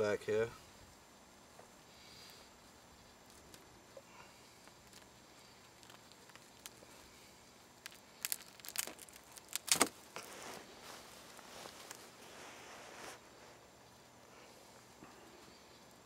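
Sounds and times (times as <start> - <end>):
skin tearing and crackling: 3.2 - 10.4.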